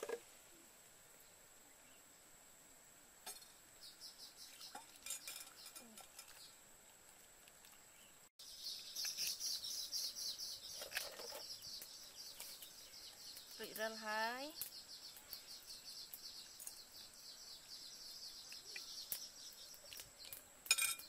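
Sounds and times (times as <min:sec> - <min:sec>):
birds chirping: 0:03.3 - 0:06.6, 0:07.7 - 0:21.0
pot and utensils clinking: 0:04.7 - 0:06.4, 0:20.3 - 0:21.0.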